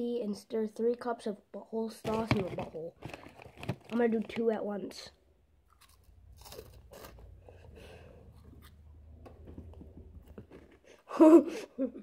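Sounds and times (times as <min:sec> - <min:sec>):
crunching snack sticks: 0:05.6 - 0:07.4.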